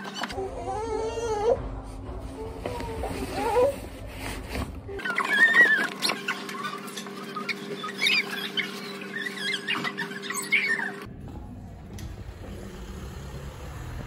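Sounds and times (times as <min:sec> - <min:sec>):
baby whimpering: 0:00.3 - 0:03.8
low hum: 0:11.0 - 0:14.0.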